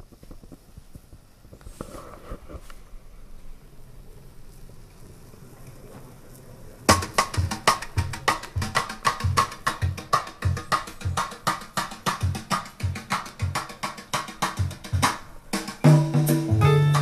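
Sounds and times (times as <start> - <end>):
music with steady drum beat: 6.9 - 17.0.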